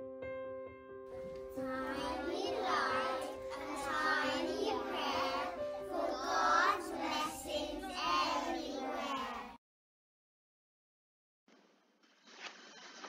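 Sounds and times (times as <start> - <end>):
keyboard chords: 1.2 - 8.3
child singing: 1.4 - 9.6.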